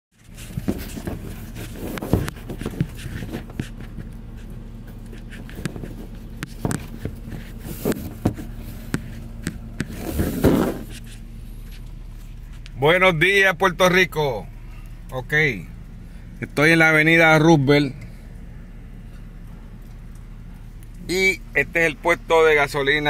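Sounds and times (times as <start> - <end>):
phone rustling against dashboard: 0.2 - 12.8
low car cabin hum: 0.2 - 23.0.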